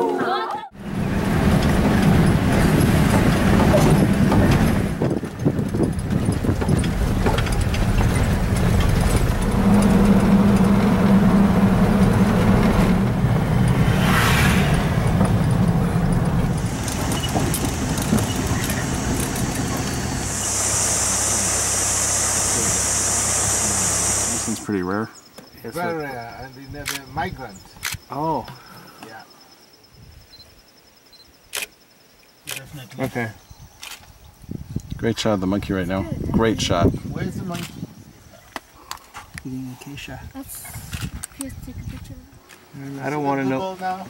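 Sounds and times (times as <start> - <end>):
vehicle engine and road noise: 0.7 - 28.6, 33.8 - 44.0
steady high buzz: 8.7 - 25.0.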